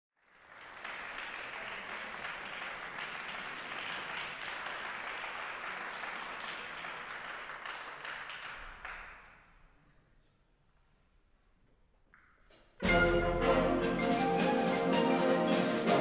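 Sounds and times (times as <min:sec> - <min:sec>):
audience applauding: 0:00.2 - 0:09.6.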